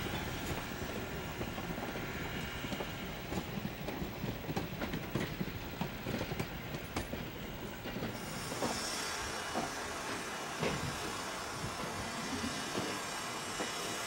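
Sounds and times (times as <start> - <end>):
steady hiss: 6.6 - 14.0.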